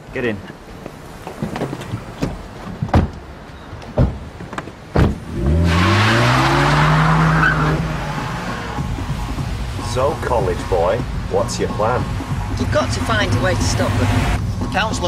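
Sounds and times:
car doors slamming: 0:01.2 - 0:06.0
car engine starting and revving: 0:05.0 - 0:14.9.

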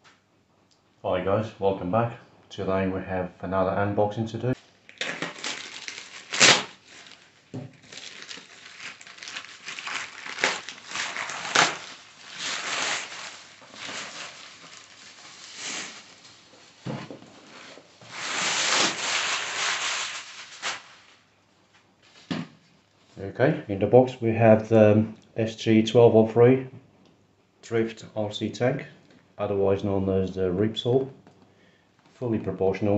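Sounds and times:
plastic bag crinkling: 0:04.8 - 0:21.3
knife slitting plastic bag: 0:05.0 - 0:21.2.

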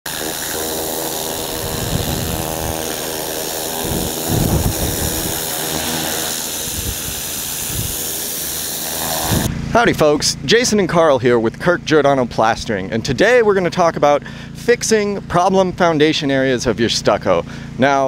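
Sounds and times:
small engine running: 0:00.0 - 0:10.0.

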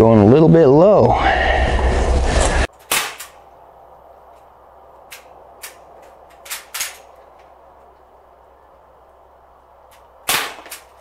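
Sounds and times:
loud rushing noise: 0:01.1 - 0:02.7
pellet pistol shots: 0:02.8 - 0:03.4, 0:10.2 - 0:11.0.

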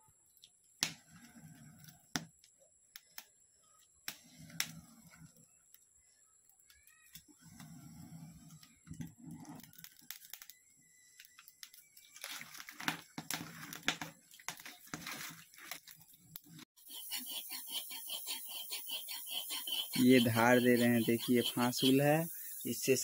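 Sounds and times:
fire crackling: 0:04.0 - 0:05.8, 0:07.2 - 0:23.0
blade being sharpened: 0:16.8 - 0:22.0.

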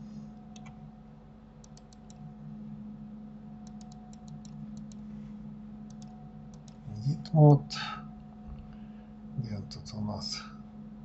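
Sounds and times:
steady low hum: 0:00.0 - 0:11.0
mouse and keyboard clicks: 0:00.5 - 0:00.8, 0:01.6 - 0:02.2, 0:03.7 - 0:05.0, 0:05.9 - 0:06.8.

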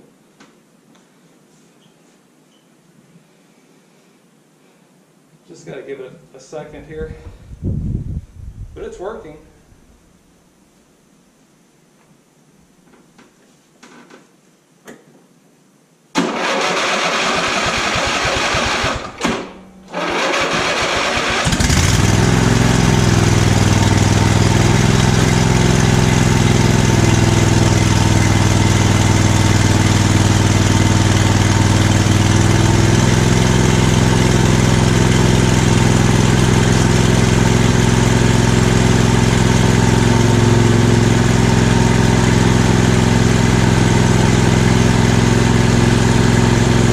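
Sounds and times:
engine starter cranking: 0:16.2 - 0:22.2
engine running steadily: 0:19.9 - 0:46.9.

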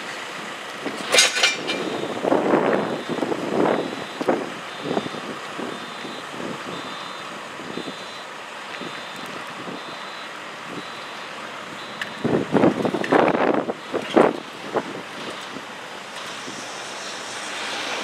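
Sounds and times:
diesel engine running: 0:00.0 - 0:18.0
wind gusts on microphone: 0:00.8 - 0:08.1, 0:12.0 - 0:18.0
reverse alarm beeping: 0:01.7 - 0:13.0, 0:13.7 - 0:14.6.

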